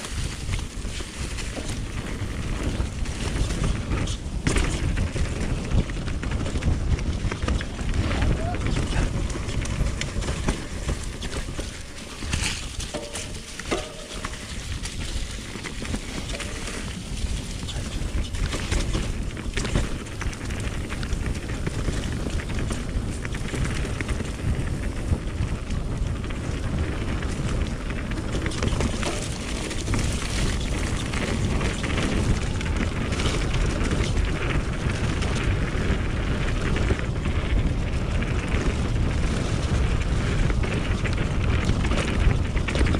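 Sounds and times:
bike knocks and rattles: 0:00.0 - 0:42.9
tyres rolling on dirt trail: 0:00.0 - 0:42.9
wind rushing over microphone: 0:00.0 - 0:42.9.

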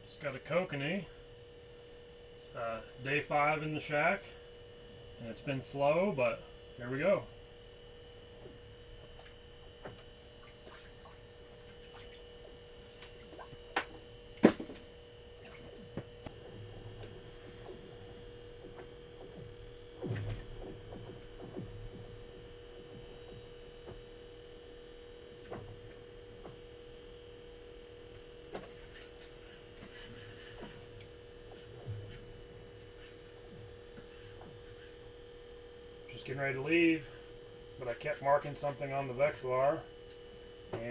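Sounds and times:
steady electrical hum: 0:00.0 - 0:40.9.

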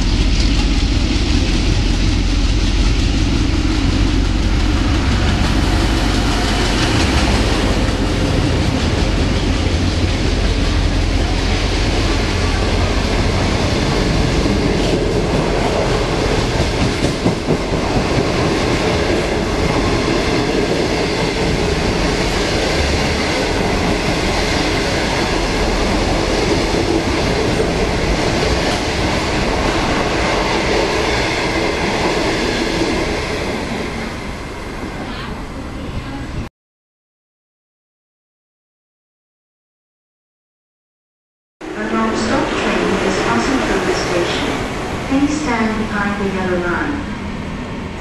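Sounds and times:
train wheels clattering on rails: 0:00.0 - 0:34.1.

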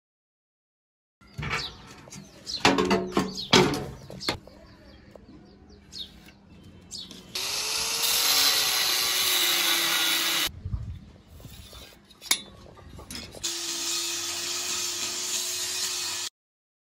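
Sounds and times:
angle grinder cutting steel: 0:07.3 - 0:10.5, 0:13.4 - 0:16.3.

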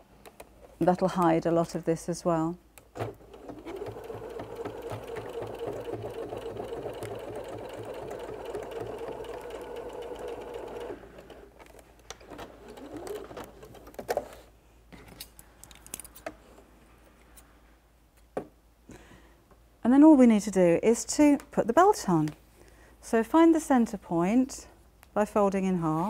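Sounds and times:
sewing machine stitching: 0:03.0 - 0:11.6, 0:12.2 - 0:13.9.

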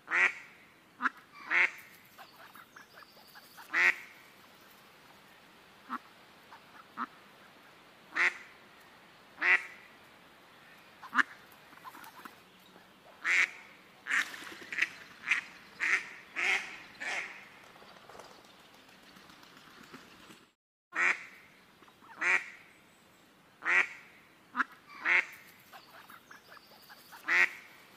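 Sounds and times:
ducks quacking: 0:00.1 - 0:04.3, 0:05.8 - 0:08.5, 0:11.0 - 0:12.4, 0:13.0 - 0:17.5, 0:23.6 - 0:27.8.

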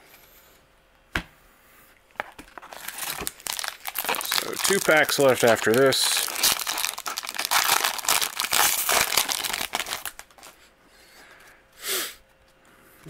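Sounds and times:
foil wrapper crinkling: 0:02.2 - 0:10.6.

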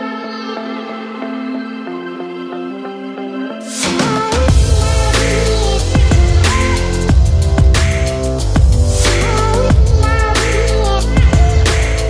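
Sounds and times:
music beat: 0:03.6 - 0:12.0.

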